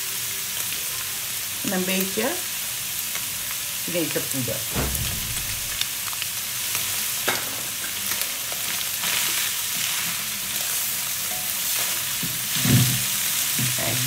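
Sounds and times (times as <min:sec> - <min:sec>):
chicken sizzling in hot oil: 0:00.0 - 0:14.0
low bump: 0:04.7 - 0:05.8.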